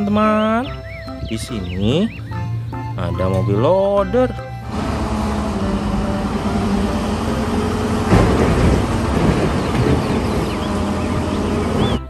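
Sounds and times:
diesel engine running under load: 0:00.6 - 0:12.0
coal pouring into truck bed: 0:07.6 - 0:11.0.

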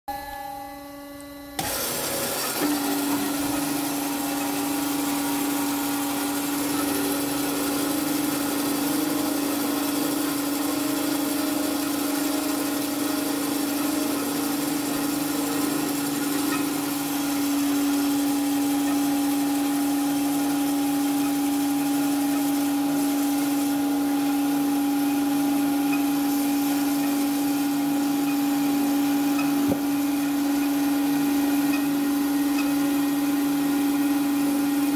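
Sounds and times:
metal-cutting band saw running: 0:01.6 - 0:34.9.

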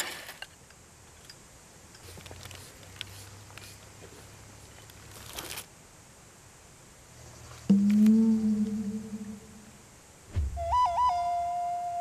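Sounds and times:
brief rustle: 0:04.8 - 0:05.7
low hum: 0:07.7 - 0:10.2.

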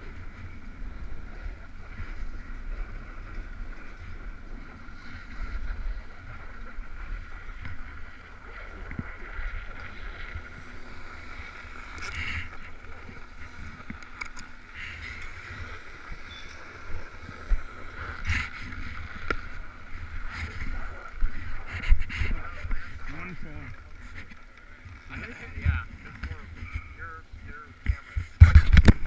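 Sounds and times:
skis sliding over snow: 0:00.0 - 0:24.4
wind rumbling on microphone: 0:00.0 - 0:29.0.

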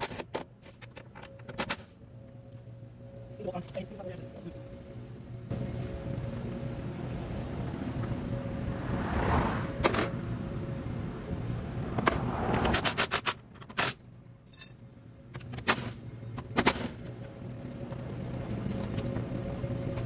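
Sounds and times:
metal tools clinking and knocking: 0:13.6 - 0:14.8.

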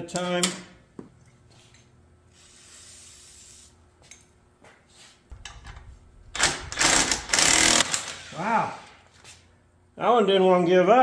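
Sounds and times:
impact wrench hammering: 0:05.3 - 0:08.2.

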